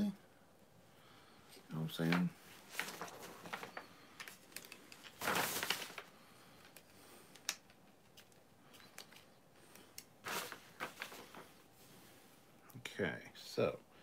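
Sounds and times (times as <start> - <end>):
rustling noise: 1.9 - 12.5.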